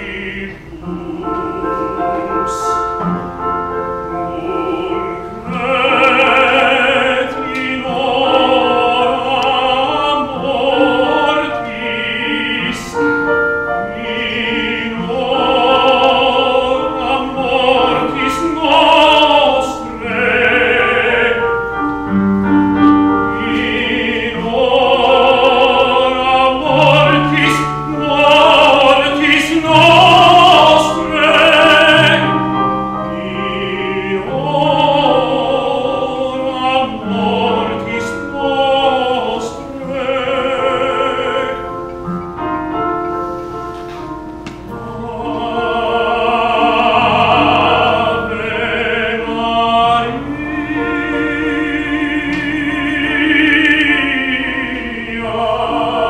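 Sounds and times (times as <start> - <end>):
man singing opera: 0.0 - 3.3, 4.1 - 21.7, 22.8 - 42.0, 44.7 - 56.0
piano accompaniment: 0.0 - 56.0.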